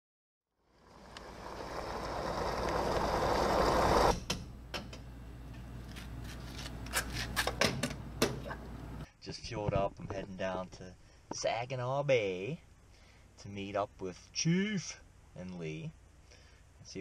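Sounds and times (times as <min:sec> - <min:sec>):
fuel rushing into tank: 0:00.8 - 0:04.1.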